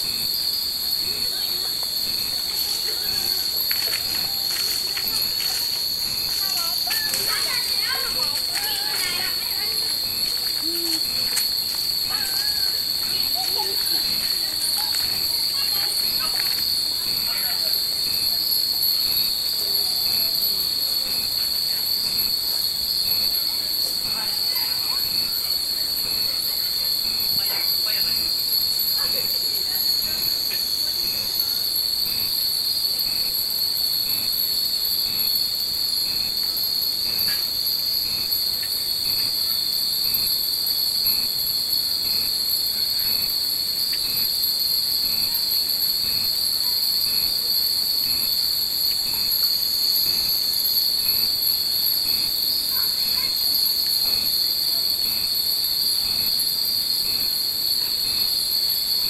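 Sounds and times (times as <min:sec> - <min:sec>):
cicadas droning: 0:00.0 - 0:59.0.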